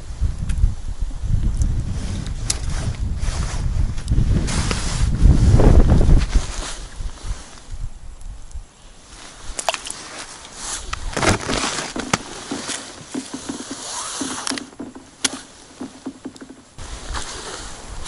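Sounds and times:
heavy clothing rustling: 2.0 - 7.7, 9.0 - 18.0
small clicks and knocks: 11.2 - 16.8.

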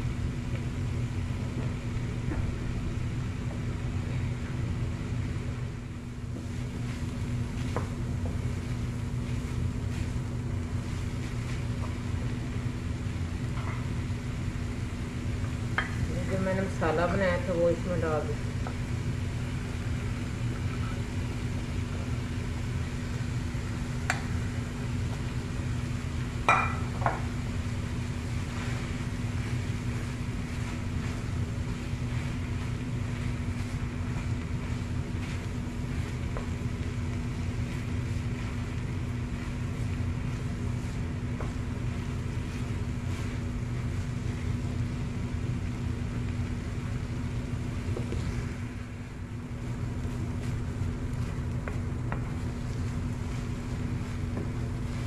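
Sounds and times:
spatula stirring in frying pan: 1.2 - 17.6, 18.4 - 55.0
spatula knocking on pan: 26.5 - 27.2.

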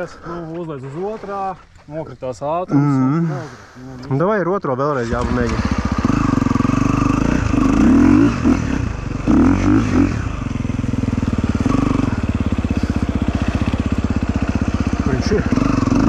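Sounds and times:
motorcycle engine revving and idling: 5.0 - 16.0.

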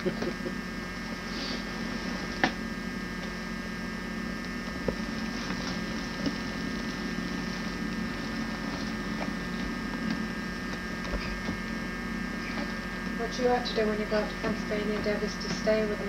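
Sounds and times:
camcorder electrical hum and hiss: 0.0 - 16.0.

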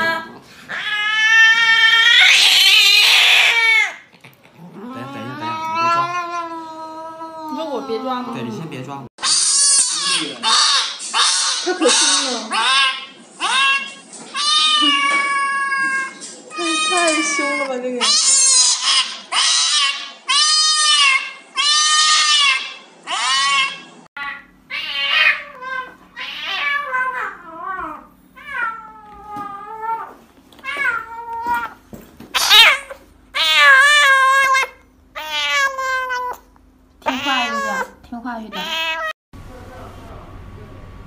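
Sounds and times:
cats meowing and yowling: 0.7 - 4.1, 4.7 - 8.5, 9.2 - 31.8, 32.4 - 39.2
kitten crying: 0.7 - 4.1, 4.8 - 8.5, 9.2 - 31.8, 32.4 - 39.2
low steady hum: 24.2 - 41.0.

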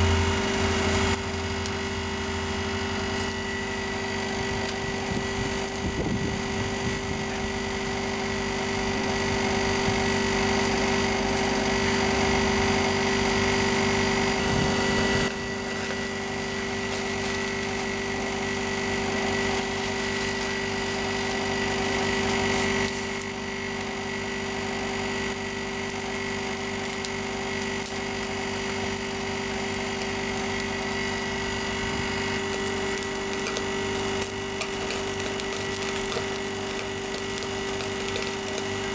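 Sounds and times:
steady mechanical hum: 0.0 - 38.9.

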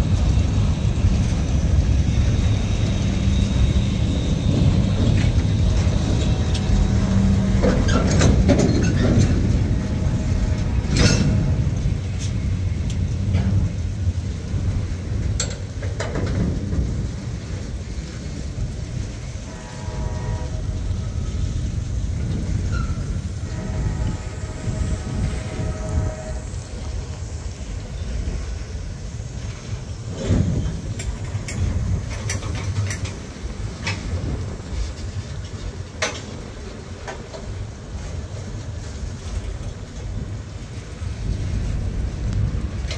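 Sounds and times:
train rumbling on rails: 0.0 - 42.9
clicks and clanks: 7.6 - 9.6, 10.8 - 11.6, 15.4 - 16.9, 30.2 - 34.3, 34.9 - 36.4.

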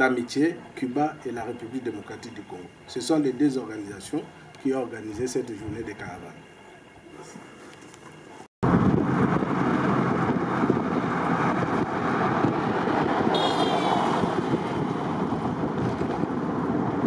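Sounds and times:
vehicle road noise: 0.0 - 17.0
wind rushing over microphone: 8.6 - 17.0.

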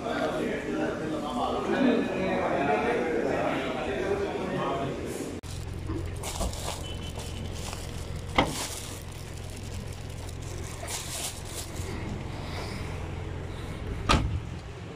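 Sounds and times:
plastic bags rustling: 5.4 - 12.3
car cabin engine hum: 5.4 - 14.9.

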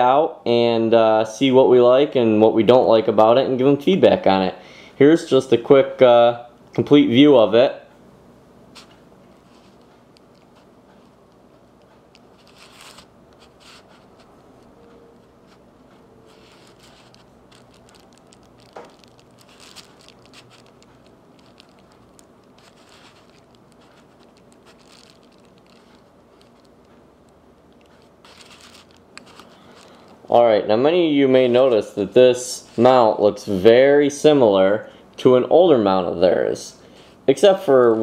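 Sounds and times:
light rustles on paper: 8.7 - 30.2.

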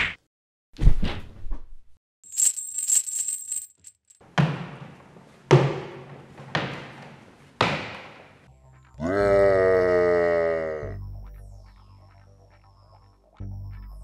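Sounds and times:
bright metallic jingle: 2.3 - 4.2.

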